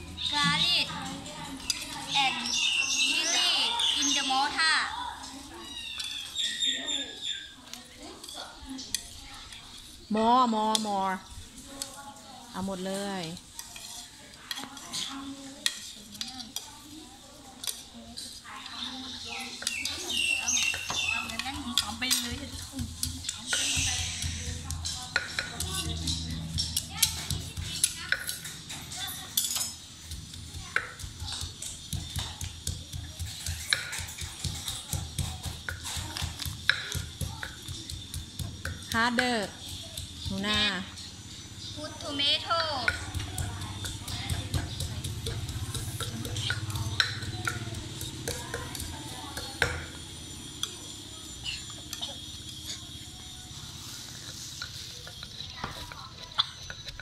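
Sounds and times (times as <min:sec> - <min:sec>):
pestle pounding in mortar: 0:19.5 - 0:29.0, 0:30.0 - 0:41.0, 0:42.8 - 0:50.6.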